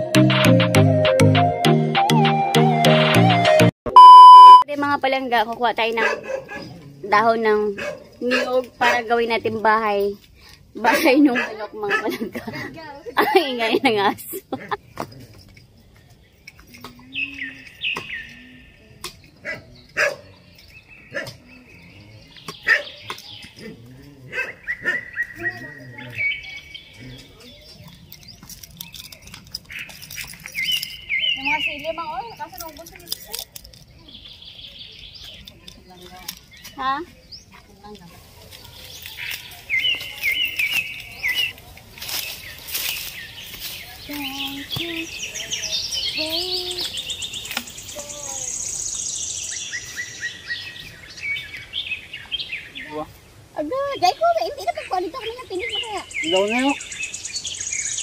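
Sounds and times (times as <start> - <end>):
small birds chirping: 4.0 - 58.0
dog barking: 6.0 - 6.8, 7.7 - 9.1, 10.8 - 12.1, 19.4 - 20.4, 21.1 - 21.4, 22.6 - 23.0, 24.3 - 25.1
dry fronds rustling and crackling: 35.3 - 48.5.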